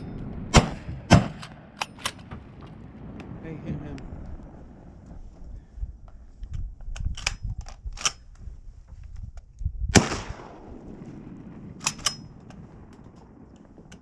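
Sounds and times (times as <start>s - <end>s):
shotgun blast echoing: 0.5s - 2.4s, 9.9s - 12.4s.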